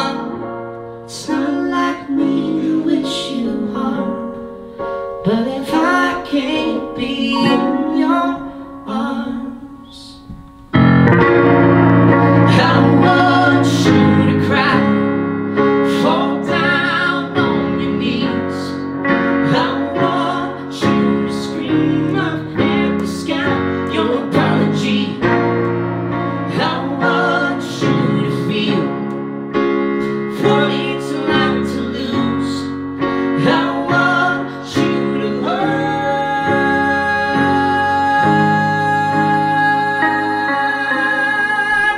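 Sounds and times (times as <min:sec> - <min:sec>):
guitar and keyboard playing: 0:00.0 - 0:41.9.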